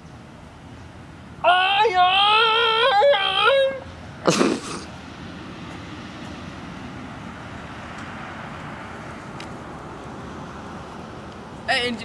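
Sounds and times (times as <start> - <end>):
outdoor background hiss: 0.0 - 12.0.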